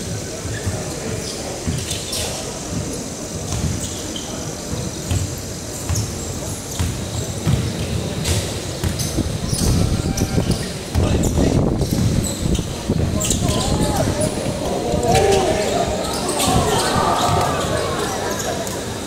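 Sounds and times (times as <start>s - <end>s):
voices of players and spectators: 0.0s - 19.0s
basketball bouncing on wooden court: 5.9s - 9.8s.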